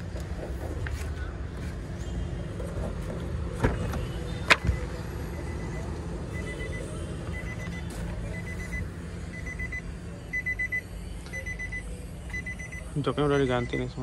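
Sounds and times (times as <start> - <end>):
car warning chime beeps: 4.6 - 14.0.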